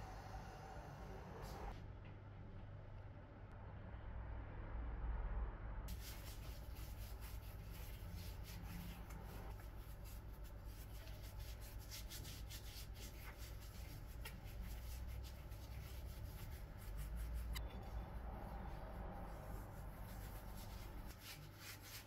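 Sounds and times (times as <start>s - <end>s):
hands scrubbing lemon peel: 5.9s - 22.0s.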